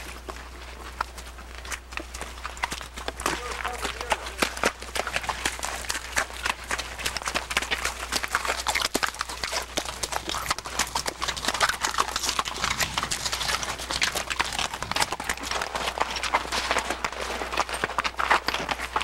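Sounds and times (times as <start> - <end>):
horse hooves clopping on gravel: 0.0 - 19.0.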